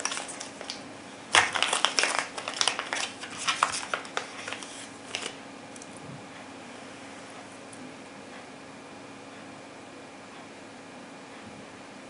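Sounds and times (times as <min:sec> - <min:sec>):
plastic bag crinkling: 0:00.0 - 0:05.9.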